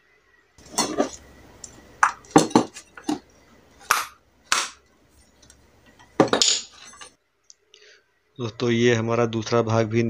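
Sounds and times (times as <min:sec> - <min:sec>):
rattling clatter: 0:00.6 - 0:03.2, 0:05.9 - 0:07.1.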